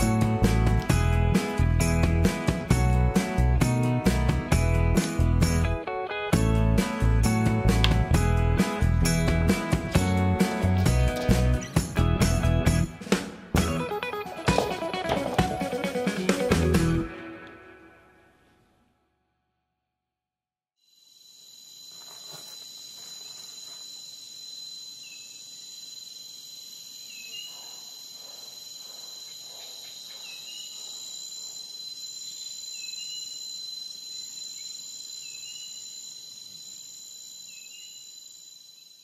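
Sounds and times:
short insect chirp: 0:20.8 - 0:39.0
insects chorus: 0:20.9 - 0:39.0.

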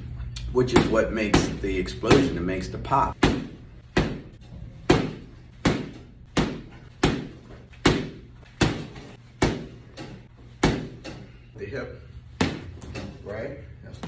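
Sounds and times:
gloves punching heavy bag: 0:03.2 - 0:11.1.

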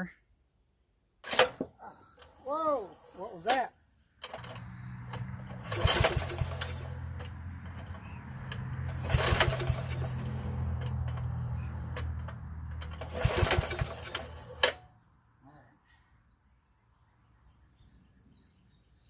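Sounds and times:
recoil starter rope pulled: 0:01.2 - 0:14.9
low engine hum: 0:04.2 - 0:14.8.

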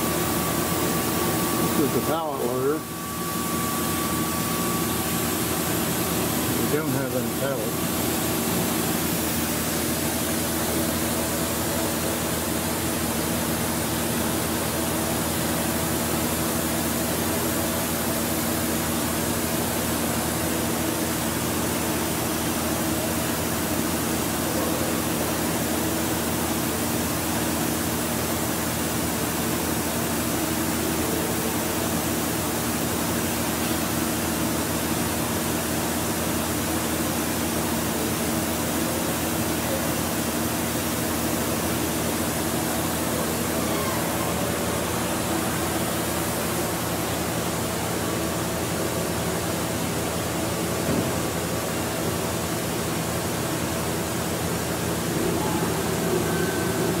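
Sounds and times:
machine hum: 0:00.0 - 0:29.4, 0:49.8 - 0:57.0.

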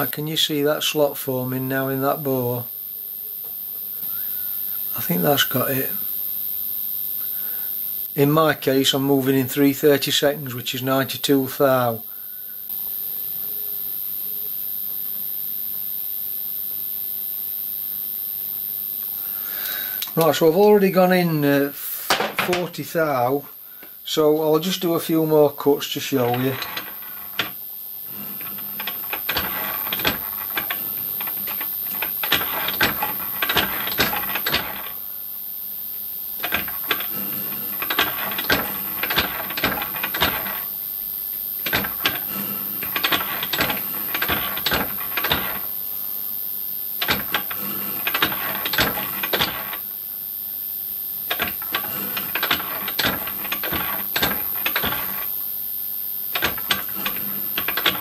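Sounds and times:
slotting tool scraping metal: 0:26.2 - 0:35.0.

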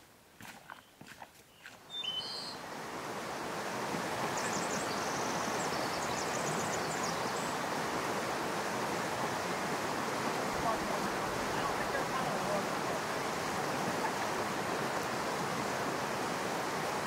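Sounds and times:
bird chirping: 0:00.7 - 0:02.6
river rushing over rocks: 0:02.6 - 0:17.0.

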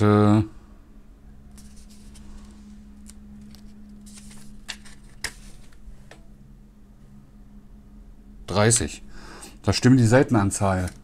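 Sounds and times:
faint low hum: 0:00.0 - 0:11.0
paper pages rustling: 0:01.5 - 0:05.8, 0:10.7 - 0:11.0.

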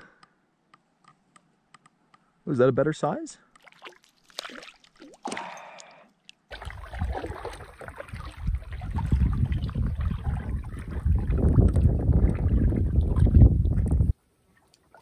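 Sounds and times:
paddle strokes in water: 0:06.5 - 0:15.0
wind on microphone: 0:06.7 - 0:14.2.

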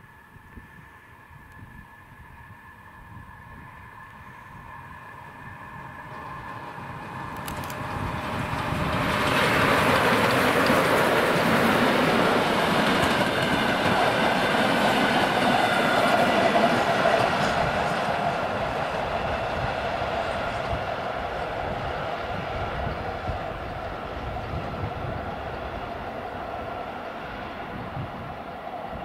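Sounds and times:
steam locomotive passing: 0:00.0 - 0:29.0
train wheels clattering on rails: 0:06.0 - 0:21.5.

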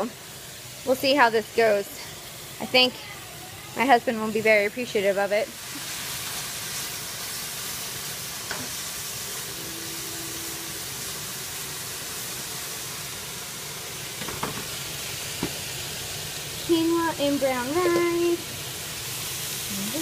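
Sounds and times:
vegetables sizzling in a skillet: 0:00.0 - 0:20.0
spatula knocking on skillet: 0:14.2 - 0:14.7, 0:15.4 - 0:15.6.

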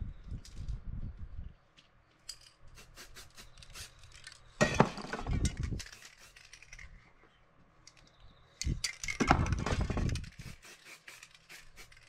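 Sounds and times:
stencil and spray can clicking: 0:10.3 - 0:12.0.

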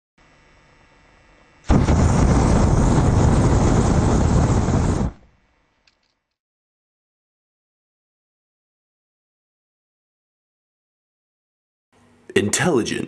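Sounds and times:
explosion rush of noise: 0:01.7 - 0:05.3.

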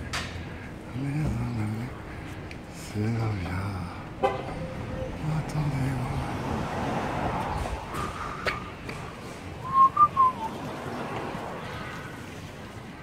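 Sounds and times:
street background noise: 0:00.0 - 0:13.0
person whistling gliding notes: 0:09.6 - 0:10.6.

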